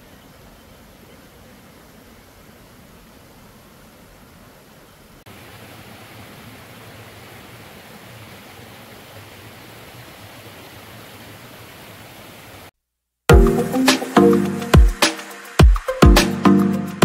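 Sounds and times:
water rushing over rocks: 0.0s - 12.7s.

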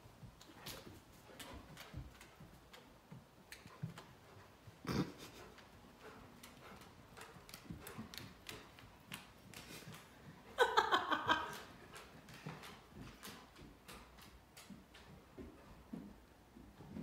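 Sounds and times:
dog claws clicking on wood floor: 0.4s - 4.4s, 5.6s - 10.2s, 11.4s - 15.3s
person laughing: 4.8s - 5.6s, 9.7s - 11.7s.

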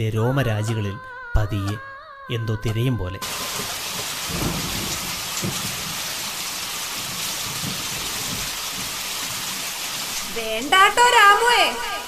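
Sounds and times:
thunder rumbling: 3.2s - 10.5s
heavy rain pouring: 3.2s - 12.0s.

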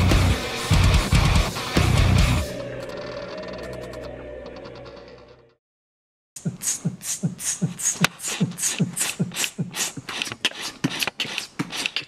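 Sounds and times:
heavy metal song: 0.0s - 5.2s
hissing hi-hat-like ts: 6.4s - 10.1s.

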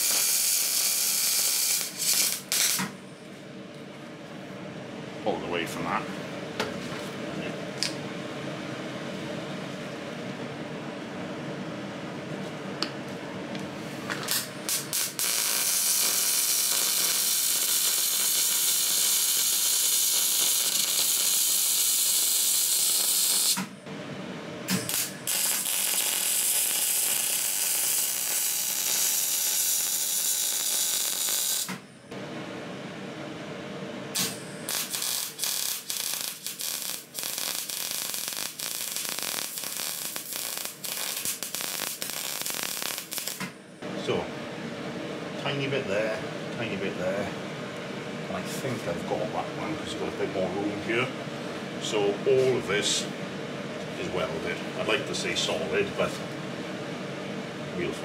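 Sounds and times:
welder arc crackling hiss: 0.0s - 2.9s, 14.2s - 23.7s, 24.7s - 31.8s, 34.2s - 43.5s.

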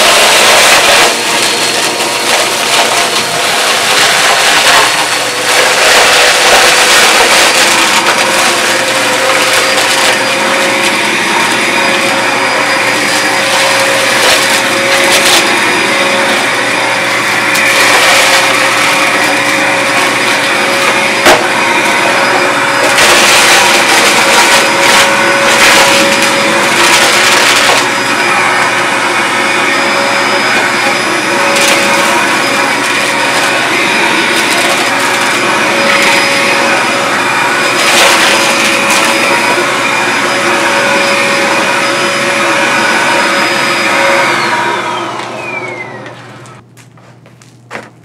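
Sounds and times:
cereal rattling in vacuum: 0.0s - 16.0s, 16.6s - 28.0s, 31.5s - 36.6s, 37.5s - 39.7s
vacuum cleaner running: 0.0s - 46.7s.

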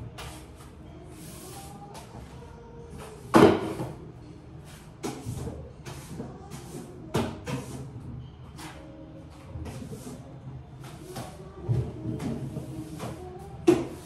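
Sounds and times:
swishing cleaning strokes: 0.2s - 2.2s.

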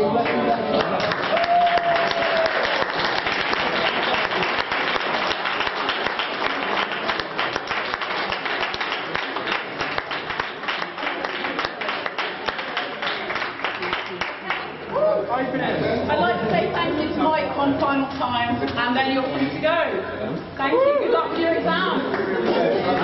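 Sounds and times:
audience applauding: 0.2s - 14.9s.

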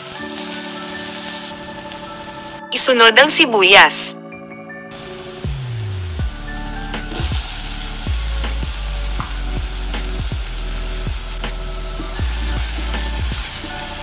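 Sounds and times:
onion sizzling in hot oil: 0.0s - 2.6s, 4.9s - 14.0s
background music with a beat: 4.2s - 14.0s.

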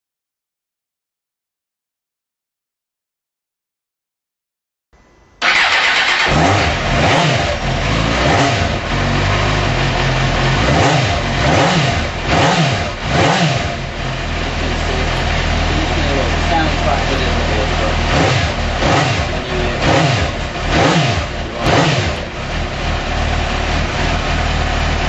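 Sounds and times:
motorcycle engine revving and idling: 5.4s - 25.0s.

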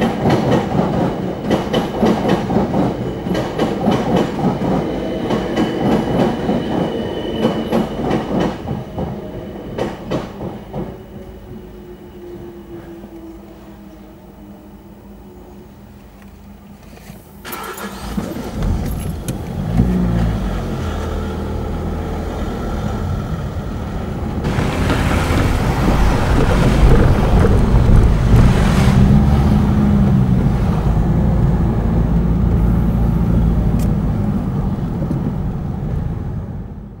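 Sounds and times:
tyre and road noise: 16.8s - 36.6s
car engine hum: 17.5s - 36.8s.

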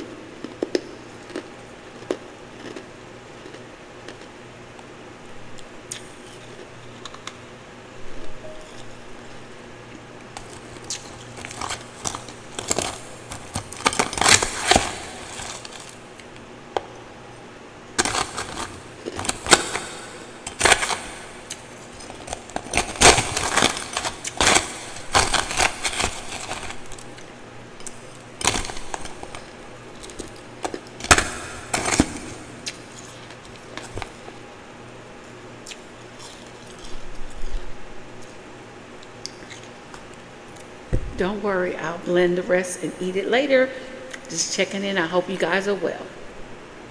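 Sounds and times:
ice crunching while eating: 0.4s - 4.4s, 10.4s - 16.2s, 18.0s - 34.4s.

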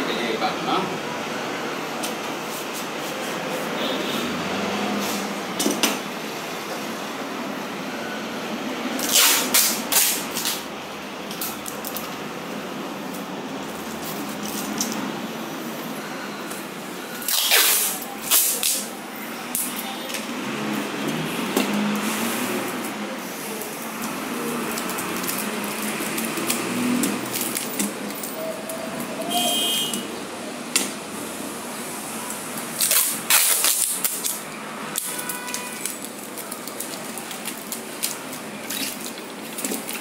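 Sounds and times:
adhesive tape ripped off roll: 9.0s - 10.6s, 17.2s - 18.9s, 32.7s - 34.4s.

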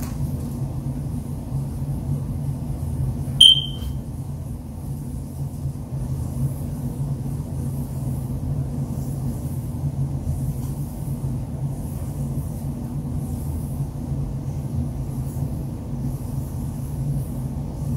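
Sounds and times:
low background hum: 0.0s - 17.9s
short high-pitched electronic beep: 3.4s - 3.9s.

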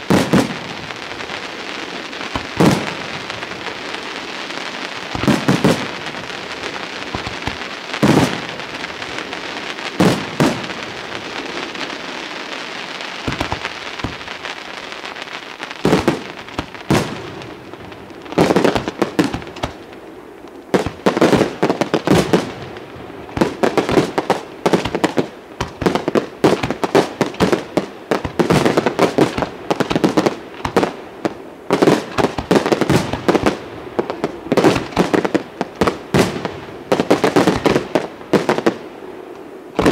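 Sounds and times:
sharp bangs of fireworks: 0.0s - 20.0s, 20.7s - 38.9s
hissing crackle: 0.0s - 39.9s
firework shells bursting: 2.3s - 3.6s, 5.0s - 8.6s, 13.2s - 14.5s.

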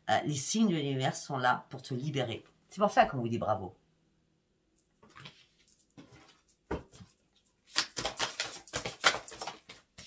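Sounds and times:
cards rustling: 7.0s - 10.0s
deck of cards shuffled: 7.0s - 10.0s.

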